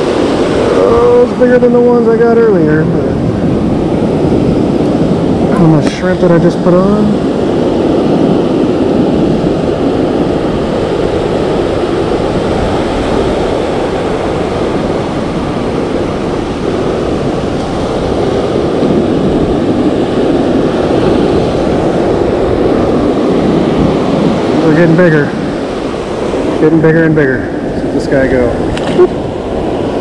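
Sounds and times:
ocean surf breaking: 0.0s - 30.0s.

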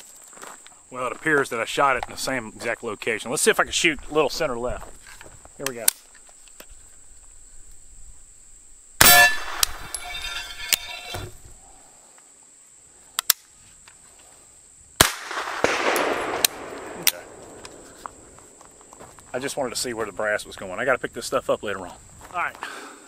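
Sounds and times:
carbine gunshot: 9.0s - 10.2s, 15.0s - 18.4s
steel plate clanging: 9.0s - 11.4s.

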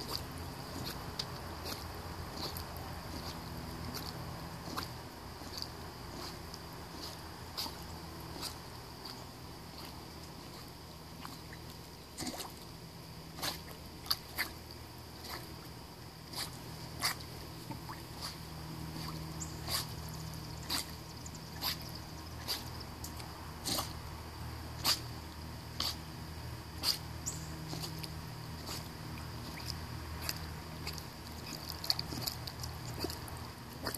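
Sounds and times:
steady low hum: 0.0s - 33.9s
underwater ticks and clicks: 29.2s - 33.9s.

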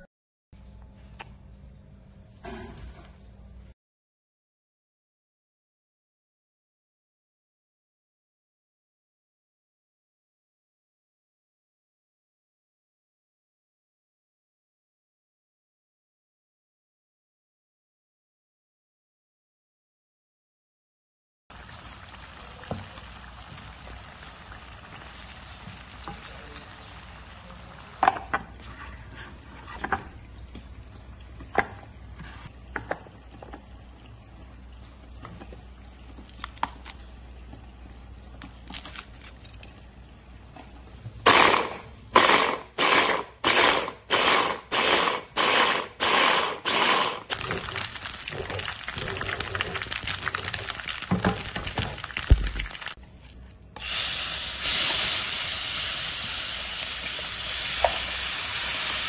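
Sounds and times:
tofu sizzling in hot oil: 21.5s - 27.4s, 47.4s - 53.0s, 53.8s - 59.0s.

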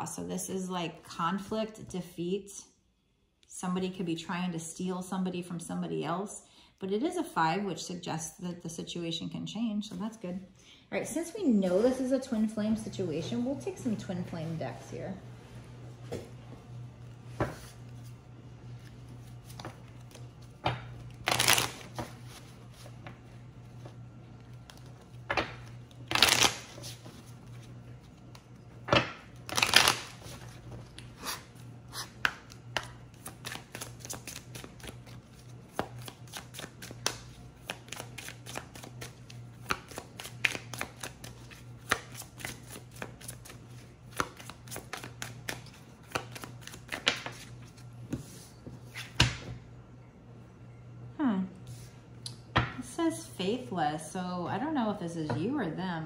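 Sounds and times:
cards riffling and rustling: 18.8s - 23.0s, 23.7s - 47.9s.

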